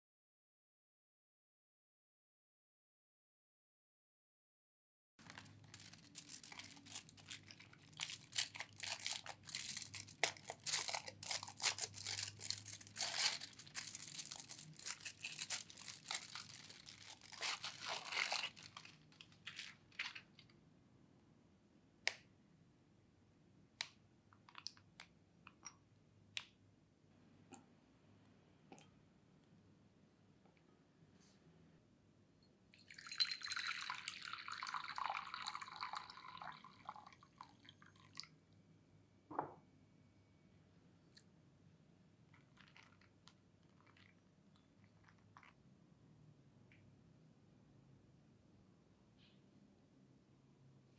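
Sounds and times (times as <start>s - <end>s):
foil wrapper crinkling and tearing: 5.2s - 20.4s.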